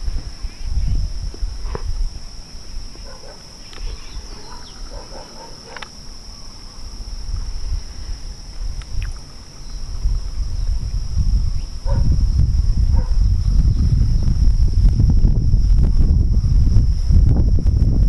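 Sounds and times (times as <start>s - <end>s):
wind buffeting microphone: 0.0s - 5.6s, 6.2s - 18.0s
faint distant animal calls: 3.0s - 7.1s.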